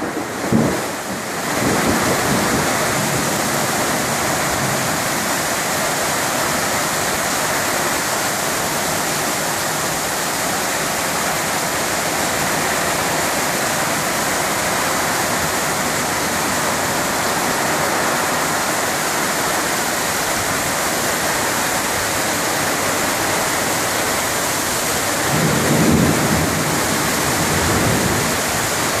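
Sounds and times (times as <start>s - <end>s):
low thunder rumble: 0.0s - 5.1s, 24.8s - 29.0s
heavy rain pouring: 0.0s - 29.0s.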